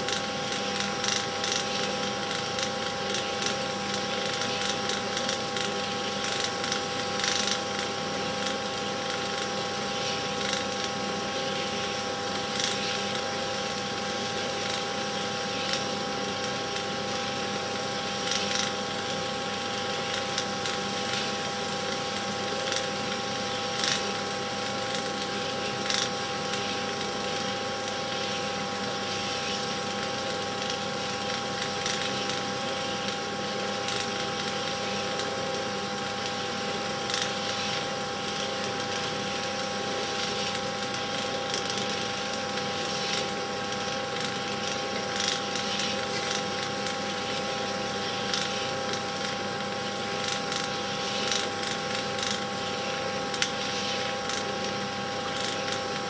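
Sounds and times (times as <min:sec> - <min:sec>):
film projector whirring: 0:00.0 - 0:56.0.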